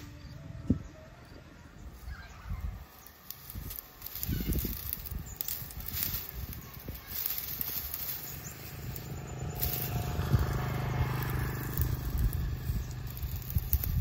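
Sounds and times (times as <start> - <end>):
small engine humming: 0.0 - 14.0.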